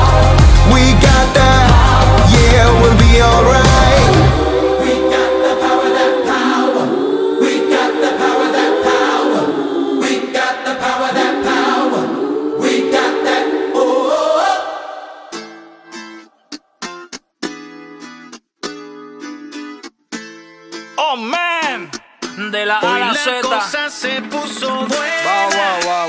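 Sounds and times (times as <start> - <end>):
choir singing held chords: 0.0 - 16.3.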